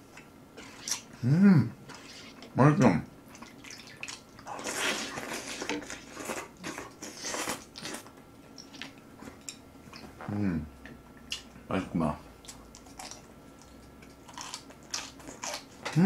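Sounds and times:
person humming: 1.2 - 1.8
wet chewing and mouth clicks: 3.3 - 10.2, 12.4 - 16.0
person slurping noodles: 4.5 - 8.0.

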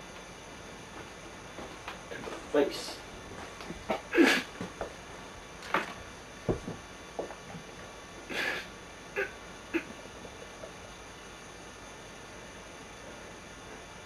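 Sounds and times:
person puffing breath and sniffing: 8.3 - 9.9.

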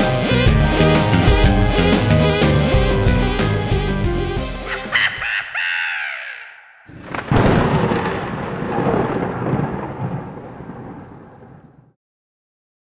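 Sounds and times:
thunder crack and rumble: 6.9 - 12.0.

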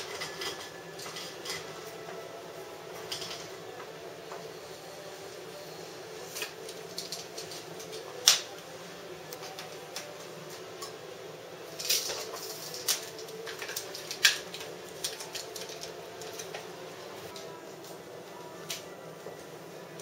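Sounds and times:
vinyl film crackling and snapping: 6.2 - 8.7, 11.7 - 16.7, 18.6 - 19.0.

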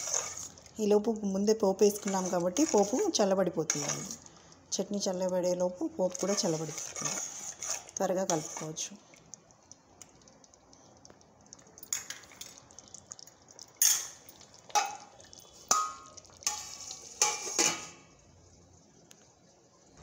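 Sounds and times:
spoon clinking in metal pot: 15.7 - 17.9.

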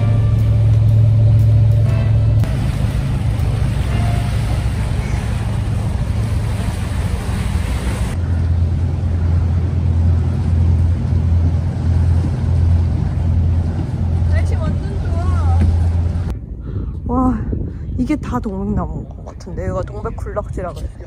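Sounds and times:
low wind rumble: 0.0 - 21.0
sea waves washing against rocks: 2.4 - 8.2
wind on microphone: 4.4 - 21.0.

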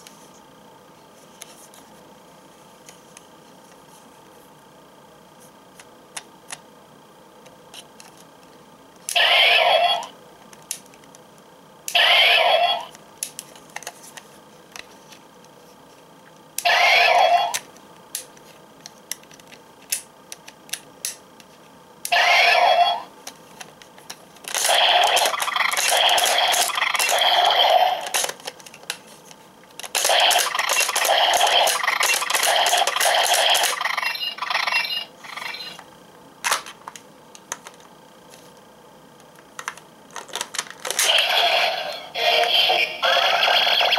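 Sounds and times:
toy electronic sound effects: 9.1 - 10.1, 11.9 - 12.9, 16.6 - 17.6, 22.1 - 23.1, 24.6 - 28.3, 30.0 - 35.8, 41.0 - 43.9.

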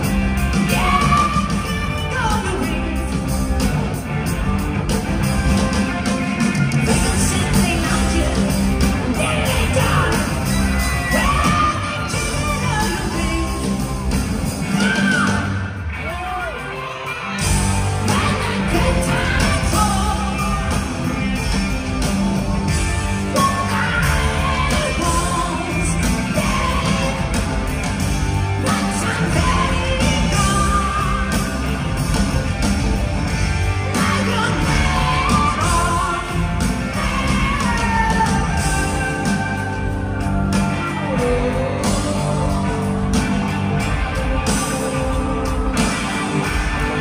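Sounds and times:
live hard rock band: 0.0 - 47.0.

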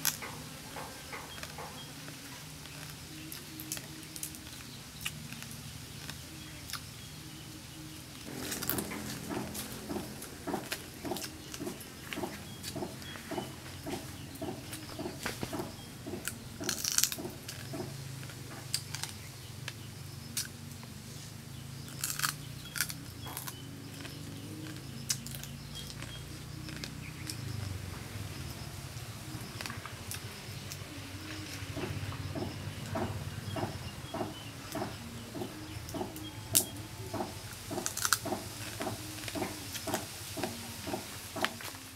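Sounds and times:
chewing: 8.1 - 21.0, 21.8 - 41.8
crab shell crunching: 8.2 - 20.6, 21.8 - 33.7, 34.8 - 41.6.

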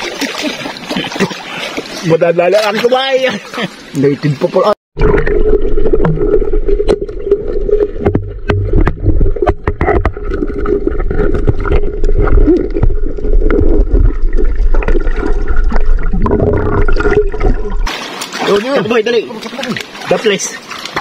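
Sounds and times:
underwater water rush: 0.0 - 21.0
sharp underwater clicks and knocks: 5.1 - 18.4.

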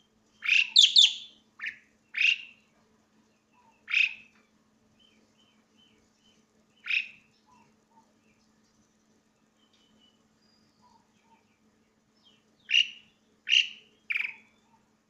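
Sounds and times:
starling calling shrilly: 0.4 - 2.5, 3.9 - 4.2, 6.8 - 7.2, 12.7 - 14.4.

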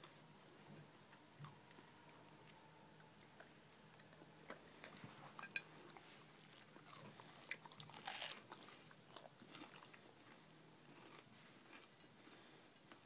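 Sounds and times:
chewing sandwich: 3.2 - 12.1.

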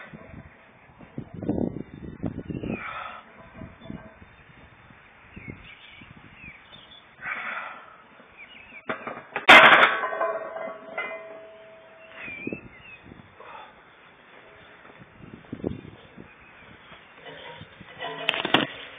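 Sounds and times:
birds chirping: 1.4 - 9.2, 10.9 - 17.8
noisy breath: 2.6 - 3.4, 7.2 - 8.1, 13.3 - 14.8
barbell clanging against steel rack: 8.9 - 12.0.

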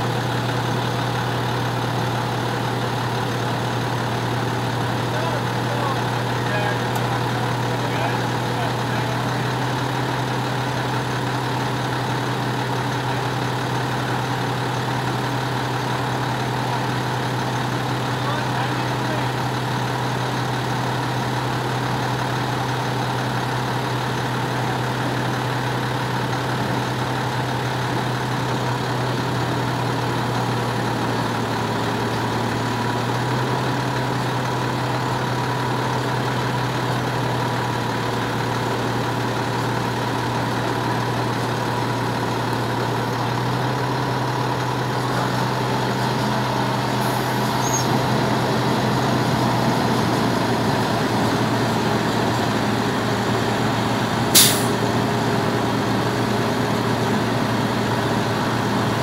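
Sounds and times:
diesel engine humming: 0.0 - 59.0.

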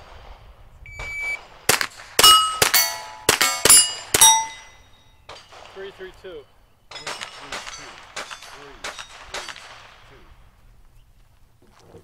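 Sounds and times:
rifle shots: 0.0 - 6.2, 6.9 - 10.4
shot timer beep: 0.9 - 1.4
steel target plate clanging: 1.7 - 5.6, 6.9 - 9.8.

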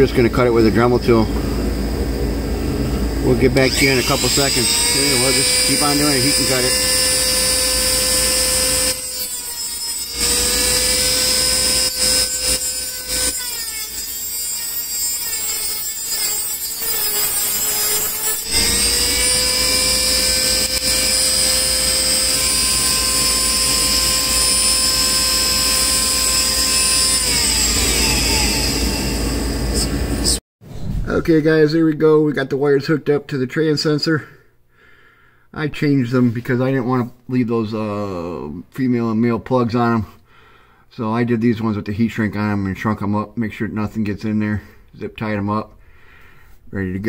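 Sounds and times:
rotary tool cutting metal: 3.5 - 30.4.

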